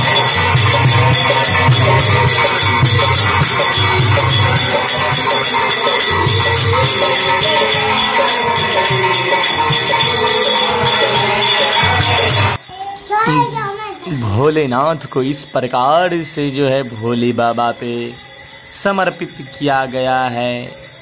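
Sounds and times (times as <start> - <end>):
group of men singing: 0.0 - 12.6
jingling metal percussion: 0.0 - 21.0.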